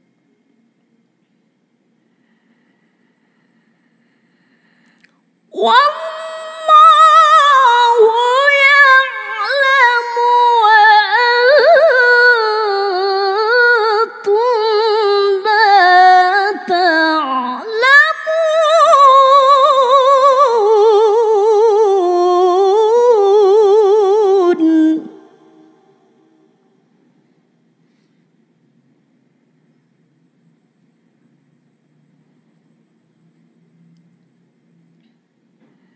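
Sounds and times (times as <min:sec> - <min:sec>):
woman chanting a recitation: 0:05.6 - 0:26.5.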